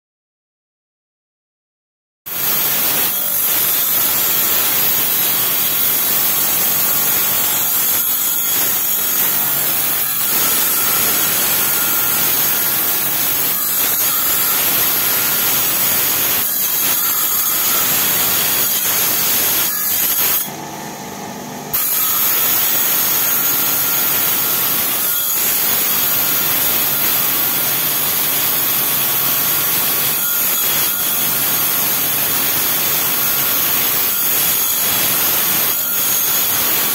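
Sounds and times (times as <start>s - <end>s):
grinding wheel rasping against stone: 2.3s - 20.5s.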